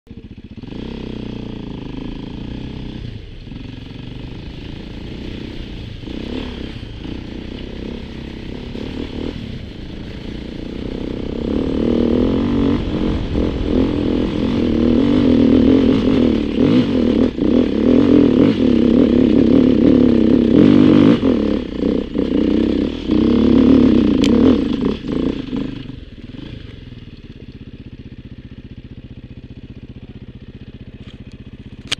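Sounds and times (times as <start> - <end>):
motorcycle engine under throttle: 0.1 - 31.9.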